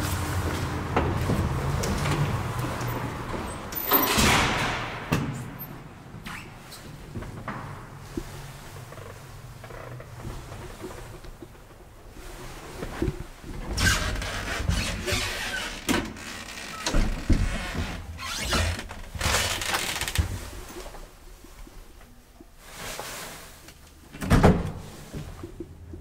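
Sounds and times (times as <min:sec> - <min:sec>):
loud elevator clunk: 0:03.9 - 0:05.4.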